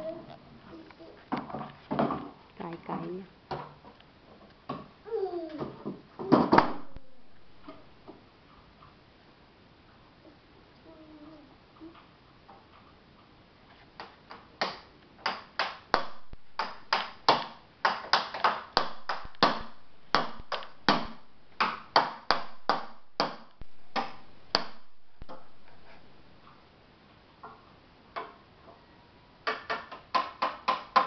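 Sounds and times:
stick knocking wooden boxes: 14.0 - 25.6, 29.5 - 31.0.

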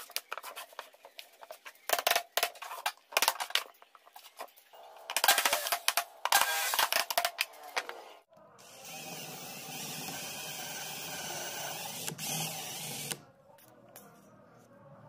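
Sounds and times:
cordless drill boring into wood: 6.4 - 6.8, 8.6 - 13.2.

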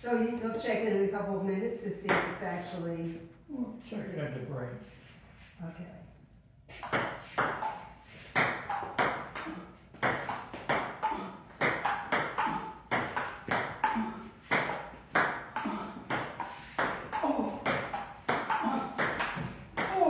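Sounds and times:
ball bouncing on table: 2.1 - 2.4, 6.8 - 20.0
table tennis ball hitting paddles: 6.7 - 20.0.

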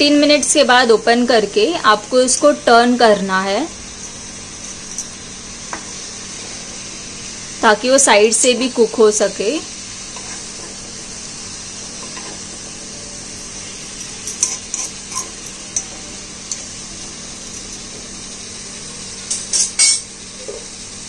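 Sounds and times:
food sizzling in a pan: 0.0 - 21.0
spatula scraping a pan: 10.1 - 10.8, 13.6 - 17.9.

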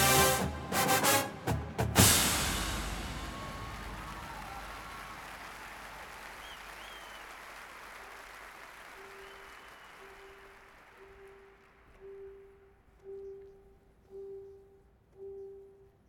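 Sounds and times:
crowd applauding and cheering: 0.0 - 12.0.

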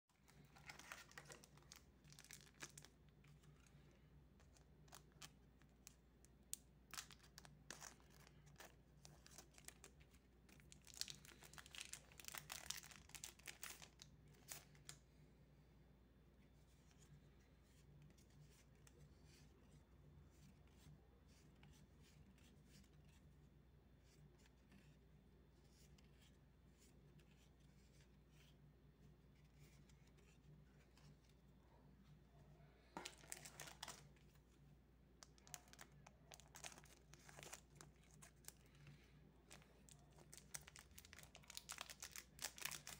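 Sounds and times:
cards rustling: 0.2 - 6.0, 6.6 - 15.0, 32.8 - 34.6, 35.2 - 42.9
foil wrapper crinkling and tearing: 10.6 - 14.6, 39.9 - 42.9.

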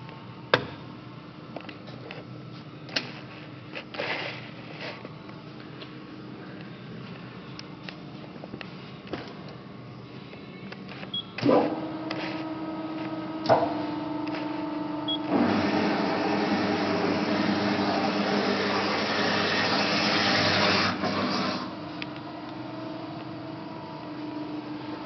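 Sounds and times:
steady motor hum: 0.0 - 25.0
motor switching on with a clunk: 11.4 - 15.8.

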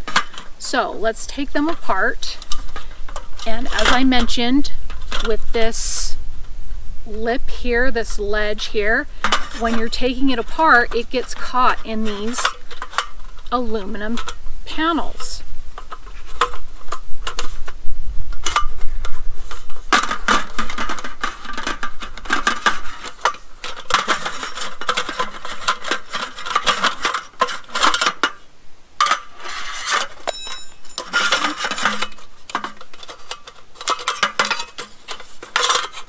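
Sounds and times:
aluminum panels clattering: 29.0 - 36.0.

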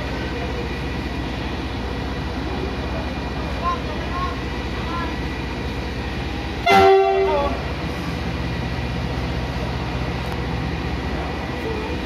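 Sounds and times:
diesel locomotive engine rumble: 0.0 - 12.0
train horn blast: 6.6 - 7.6.

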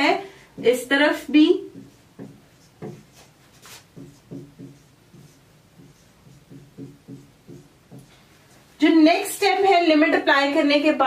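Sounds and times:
marker writing on whiteboard: 0.6 - 8.7.

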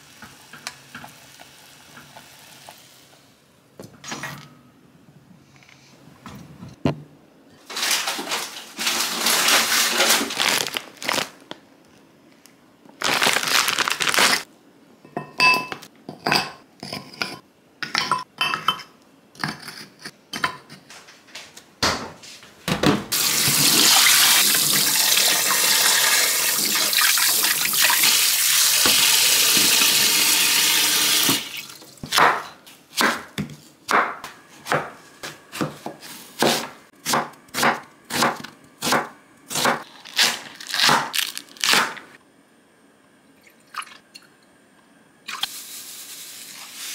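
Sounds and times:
frozen fish clinking in jug: 7.7 - 11.3
tap water running into jug: 23.2 - 32.0
knife chopping on wooden board: 32.0 - 39.8.

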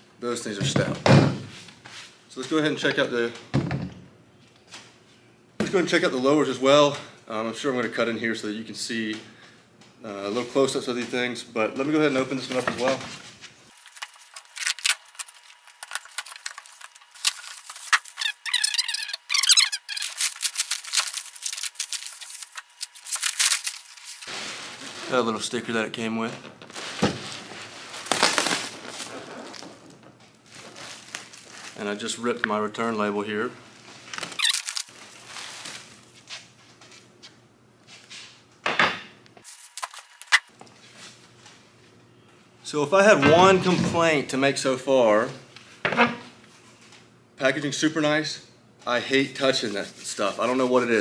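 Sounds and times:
packaging wrap crinkling: 13.7 - 25.7, 26.6 - 32.2, 34.0 - 36.1, 39.5 - 40.5
squeaky rubbing: 17.8 - 20.6.

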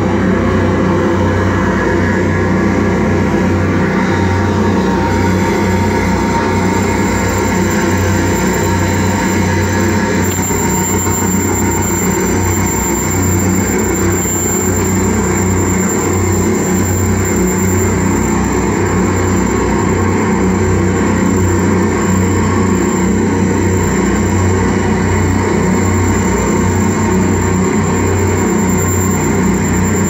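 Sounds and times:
electronic noise drone: 0.0 - 30.0
thin high whine: 0.0 - 30.0.

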